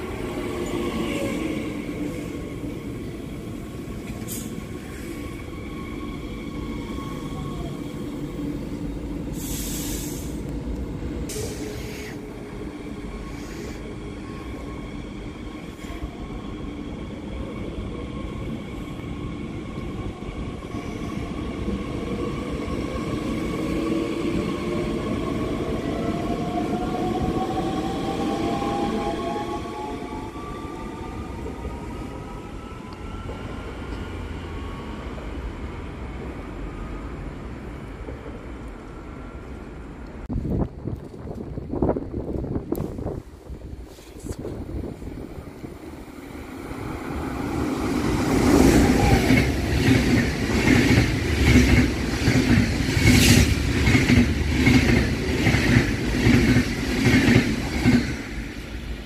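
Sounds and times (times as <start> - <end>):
short hisses: 9.4 - 10.4
train wheels rumbling on rails: 40.1 - 59.0.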